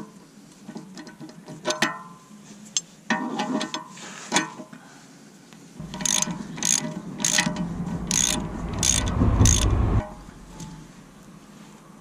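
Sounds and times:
socket ratchet clicking: 5.8s - 7.5s, 8.1s - 9.8s
low rumble: 5.8s - 11.7s.

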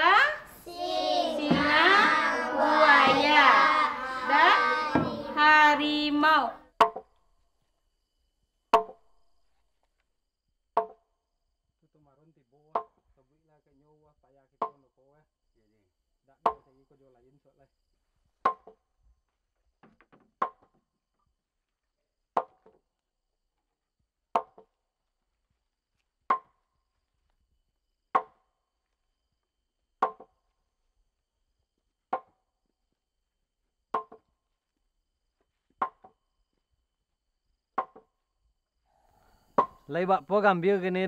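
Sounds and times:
wooden pole pounding on wood: 1.4s - 5.4s, 8.7s - 9.0s, 10.8s - 11.0s, 12.7s - 13.0s, 18.5s - 18.8s, 19.8s - 20.8s, 22.4s - 22.8s, 24.4s - 24.7s, 26.3s - 26.6s, 28.2s - 28.4s, 30.0s - 30.4s, 32.1s - 32.4s, 33.9s - 34.3s, 35.7s - 36.2s, 37.8s - 38.1s.

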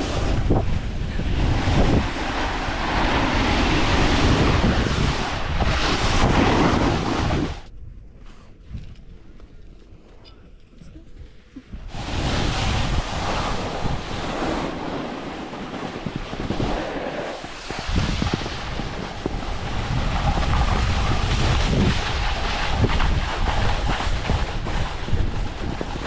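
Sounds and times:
skis scraping on snow: 0.0s - 7.6s, 11.7s - 26.0s
wind buffeting microphone: 0.0s - 10.1s, 11.0s - 26.0s.

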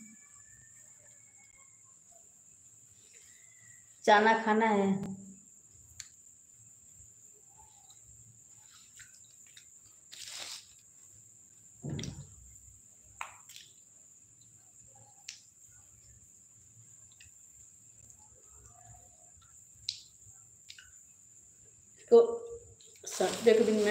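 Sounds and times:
faint high-pitched tone: 0.0s - 2.2s.

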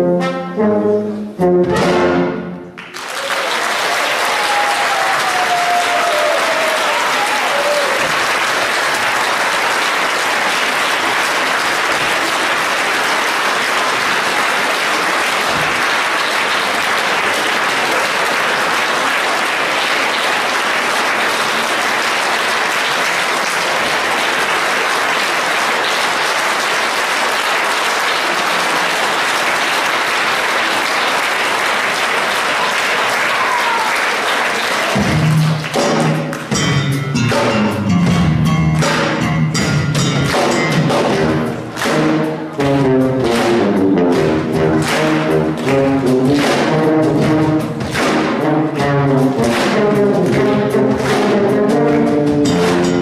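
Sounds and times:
wind orchestra playing: 0.0s - 2.8s, 41.0s - 53.0s
audience applauding: 2.8s - 36.6s, 40.3s - 53.0s.

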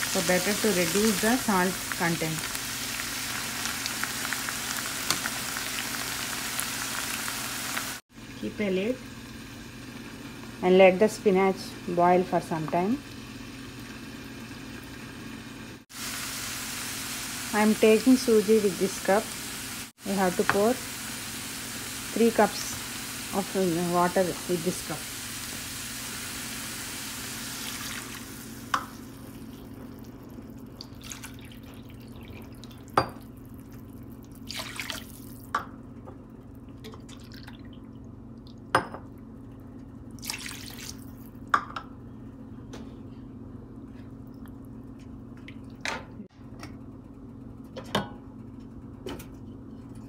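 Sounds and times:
food sizzling in frying pan: 0.0s - 8.3s, 9.0s - 35.5s
water pouring and splashing: 27.5s - 28.4s, 29.1s - 35.5s, 36.8s - 37.8s, 40.2s - 41.3s.

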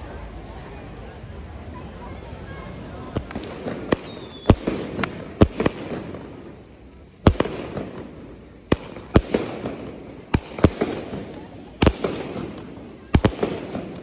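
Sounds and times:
fireworks crackling: 0.0s - 14.0s
fireworks bangs: 2.8s - 14.0s.

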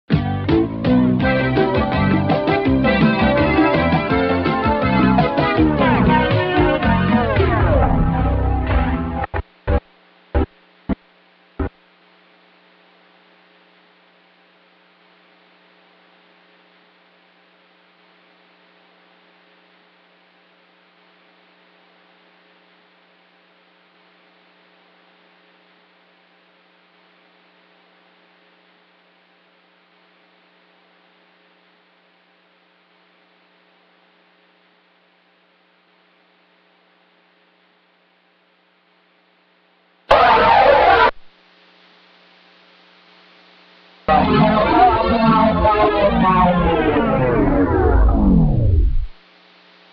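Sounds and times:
faint electrical hum: 8.0s - 49.9s
soft hiss: 41.2s - 44.1s, 49.1s - 49.9s.

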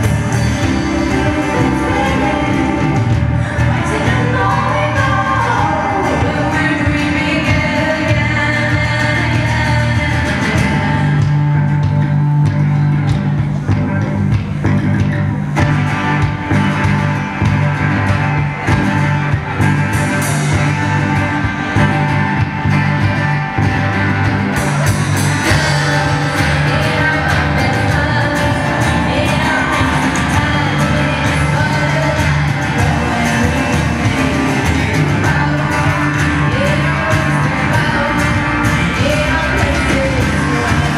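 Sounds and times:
woman singing: 0.0s - 12.1s, 25.4s - 40.9s
bass line: 0.0s - 40.9s
drums: 0.0s - 40.9s
guitars: 0.0s - 40.9s.

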